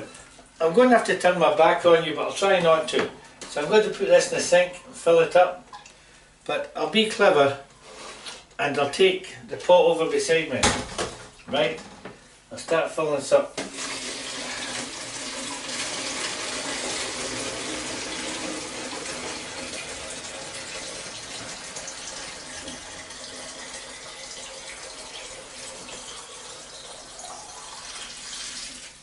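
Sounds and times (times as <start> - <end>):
tap water filling plastic jug: 13.6 - 29.0.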